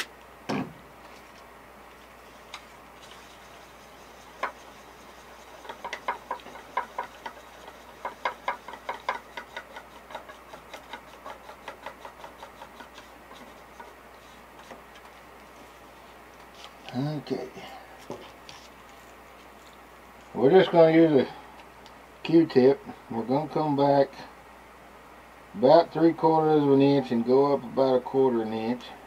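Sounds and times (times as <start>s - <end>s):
stir stick clicking against cup: 5.6s - 13.1s.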